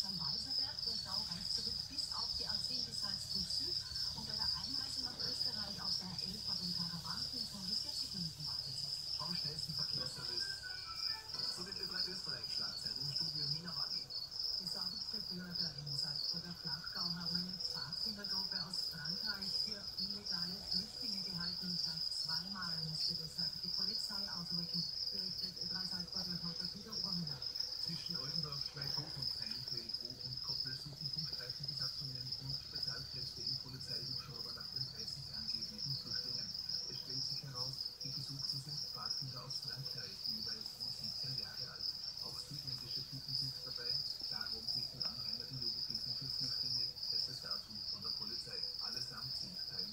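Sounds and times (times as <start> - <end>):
crickets chirping: 0.0 - 49.9.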